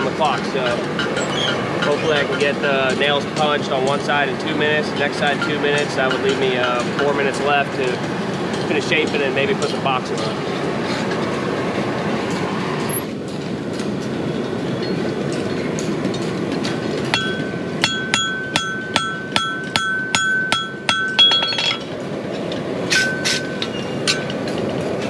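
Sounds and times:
hammer striking steel on anvil: 17.1 - 22.0, 22.9 - 24.6.

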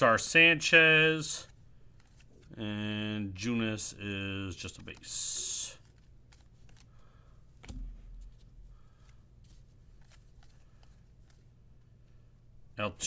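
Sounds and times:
cards being flipped through: 1.4 - 2.6, 4.6 - 11.6.

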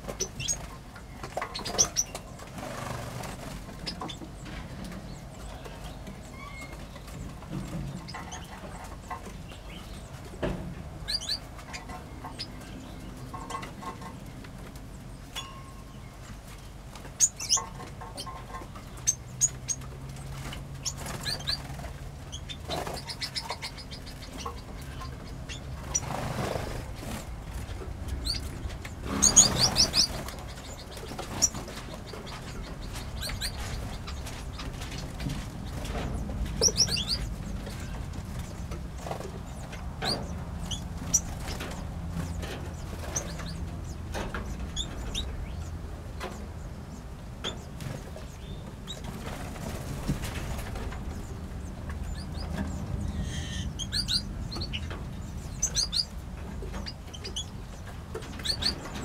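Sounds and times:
small birds chirping: 0.0 - 59.0
wings fluttering: 0.1 - 5.0, 19.6 - 43.8, 48.9 - 51.3.

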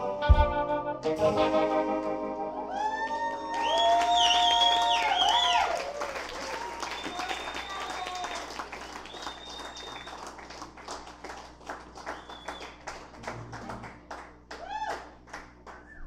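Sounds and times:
person whooping: 2.6 - 8.5, 14.5 - 15.2
crowd clapping and whistling: 2.8 - 16.0.

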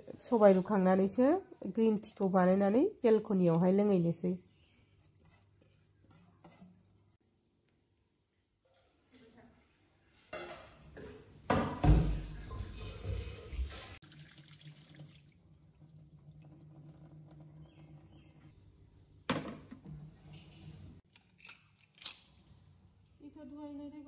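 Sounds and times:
water splashing into steel sink: 11.6 - 17.4.

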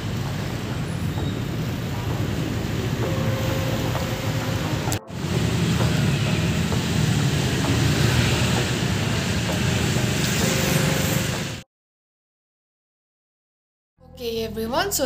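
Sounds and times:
low engine and tyre rumble: 0.0 - 11.6
road and traffic noise: 0.0 - 11.6.

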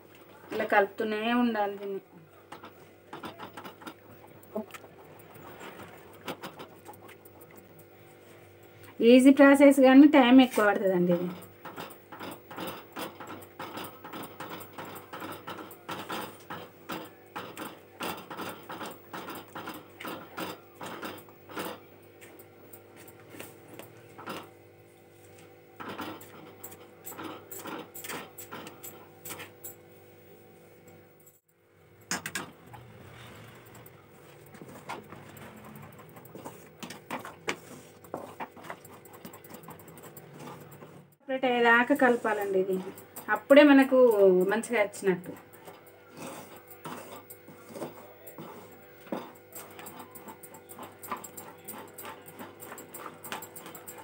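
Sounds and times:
wooden spatula scraping metal pan: 32.3 - 45.5, 46.1 - 54.0.

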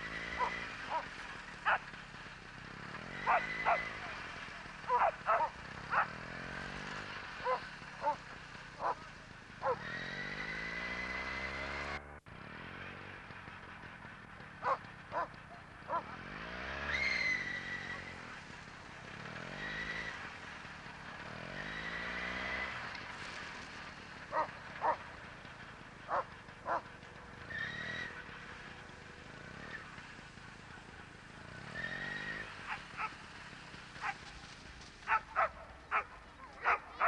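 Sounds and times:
dogs yelping: 0.2 - 1.9, 3.1 - 6.2, 7.4 - 8.2, 8.8 - 9.0, 9.6 - 10.0, 14.6 - 16.1, 24.3 - 25.0, 26.1 - 27.0, 32.0 - 33.2, 34.0 - 34.2, 35.0 - 37.0.

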